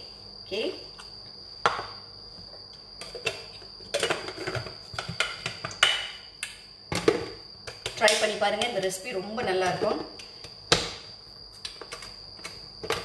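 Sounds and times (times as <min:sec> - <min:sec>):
kitchen containers clicking and knocking: 0:03.0 - 0:06.1.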